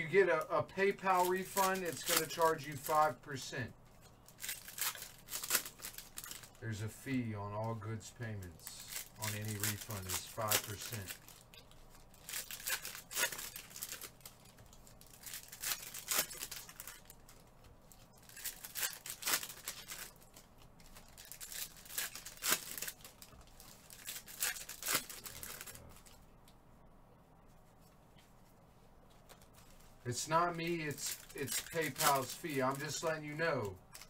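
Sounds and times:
foil packs tearing and crinkling: 0:00.9 - 0:03.2, 0:04.3 - 0:06.6, 0:08.6 - 0:11.4, 0:12.1 - 0:17.4, 0:18.2 - 0:26.0, 0:30.1 - 0:34.0.

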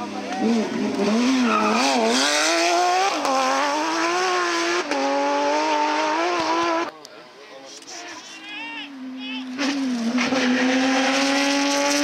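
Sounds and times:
rally car engine accelerating: 0:00.0 - 0:06.9, 0:09.5 - 0:12.0.

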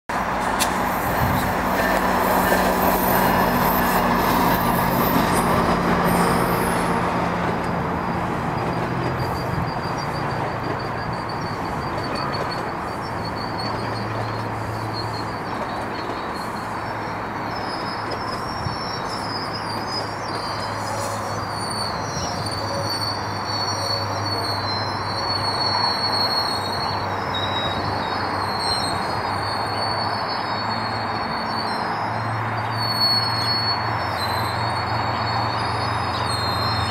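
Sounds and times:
train wheels rumbling on track: 0:00.1 - 0:36.9
wavering wheel squeal: 0:00.1 - 0:36.9.

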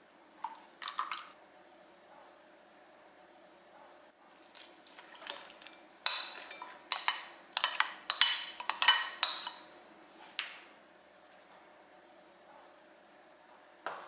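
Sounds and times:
glass bowl clinking: 0:05.2 - 0:09.7.

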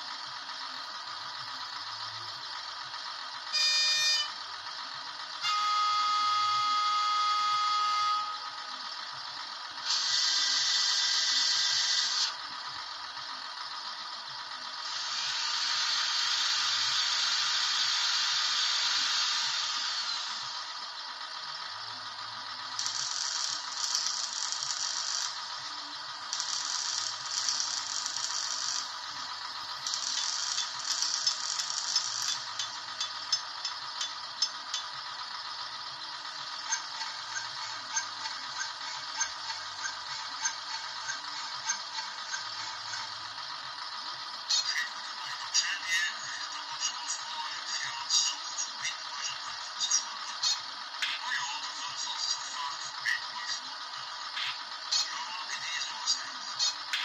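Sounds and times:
model train horn toot: 0:03.5 - 0:04.4, 0:05.4 - 0:08.7.

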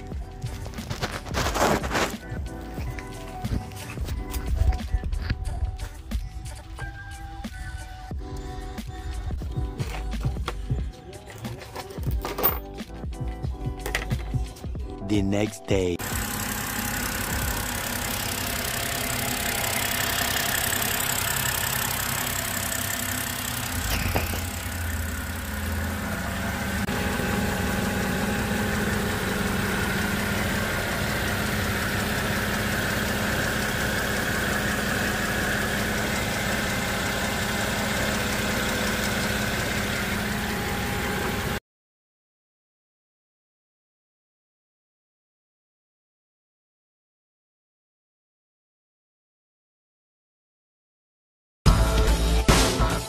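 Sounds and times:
car engine idling: 0:16.0 - 0:41.6.

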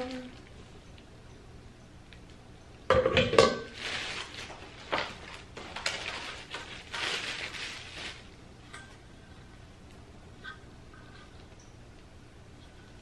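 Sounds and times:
metal baking pans clanking: 0:02.9 - 0:03.8
plastic wrapping crinkling: 0:03.7 - 0:08.4.

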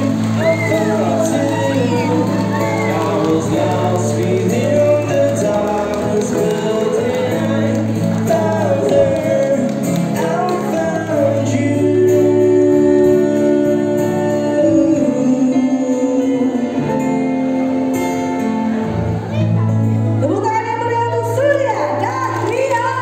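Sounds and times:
music with singing voice: 0:00.0 - 0:23.0.

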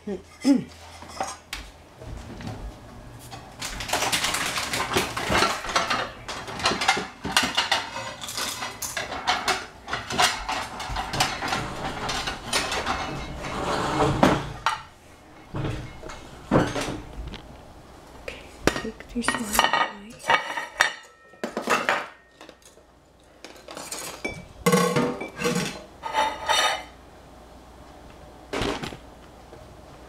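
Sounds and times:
kitchenware clattering and scraping: 0:00.1 - 0:01.5, 0:03.3 - 0:17.2, 0:18.7 - 0:22.8, 0:23.4 - 0:27.0.

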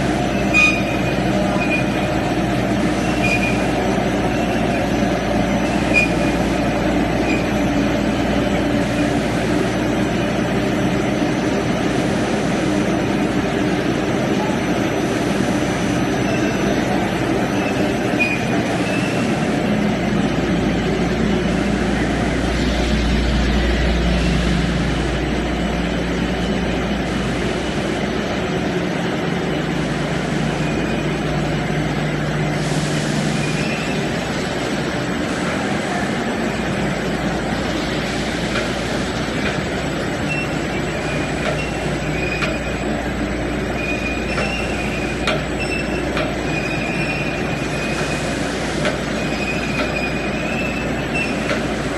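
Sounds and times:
production line machinery running: 0:00.0 - 0:51.9
deep rumble: 0:21.5 - 0:26.7.

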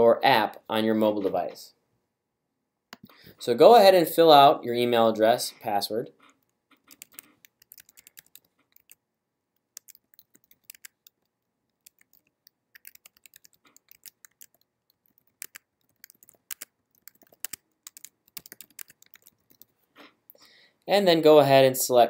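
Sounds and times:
computer keyboard typing: 0:06.2 - 0:09.0, 0:09.6 - 0:19.8.

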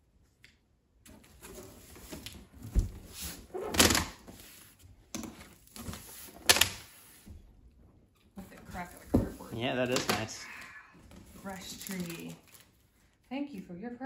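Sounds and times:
cardboard scraping and rustling: 0:01.1 - 0:07.4
cardboard flaps thumping: 0:01.3 - 0:04.4.

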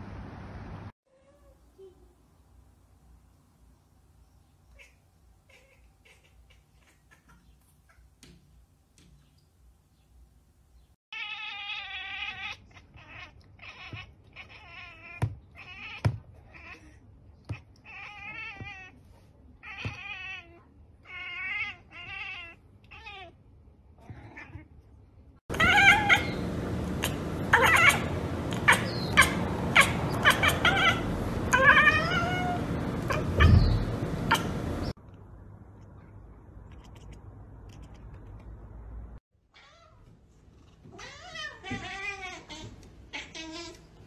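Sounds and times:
cat chattering chirps: 0:04.7 - 0:08.1, 0:27.0 - 0:34.5.

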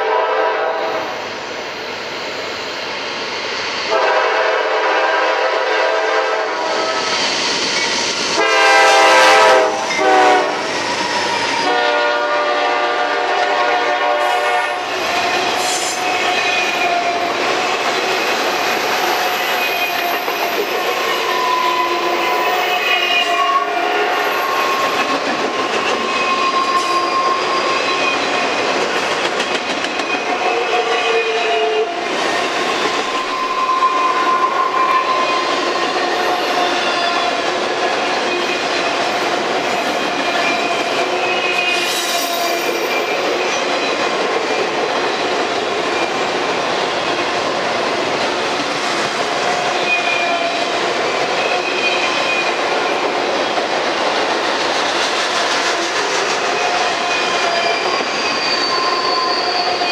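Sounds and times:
locomotive air horn: 0:00.0 - 0:01.1, 0:03.9 - 0:07.0, 0:08.4 - 0:10.6, 0:11.6 - 0:14.9, 0:21.8 - 0:24.2
train wheels clickety-clack: 0:03.4 - 0:59.9
wheel squeals: 0:57.0 - 0:59.9.

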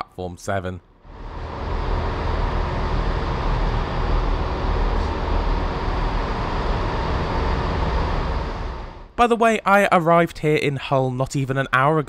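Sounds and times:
diesel trains idling: 0:01.1 - 0:09.2.

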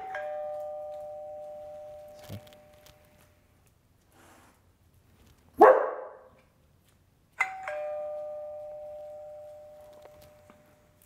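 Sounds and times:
two-tone doorbell chime: 0:00.0 - 0:03.1, 0:07.4 - 0:10.9
dog barking: 0:05.6 - 0:06.3.

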